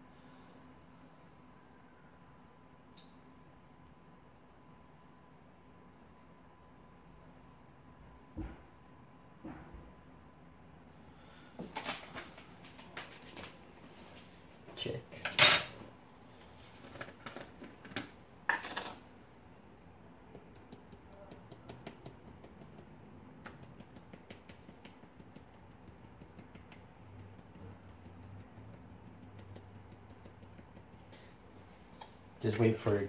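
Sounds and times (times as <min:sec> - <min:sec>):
spice shaker ticking: 0:20.3 - 0:31.2.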